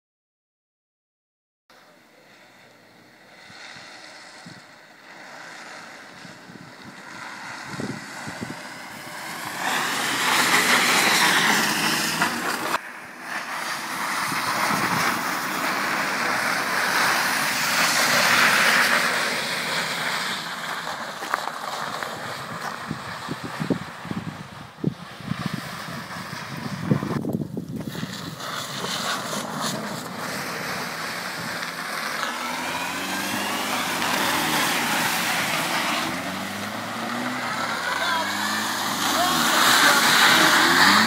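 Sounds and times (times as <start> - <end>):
car engine revving: 2.0 - 24.3, 25.0 - 41.0
tyres spinning through snow: 2.3 - 41.0.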